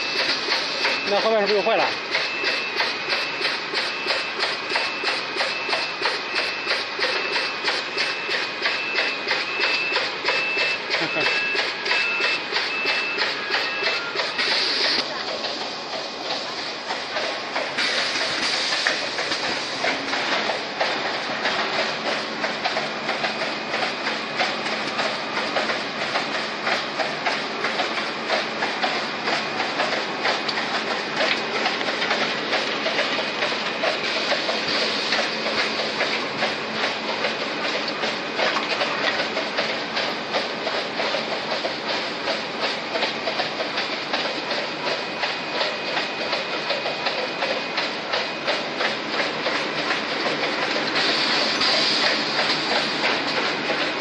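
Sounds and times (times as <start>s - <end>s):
repeating mechanical clatter: 0.0s - 54.0s
machine hum: 13.5s - 54.0s.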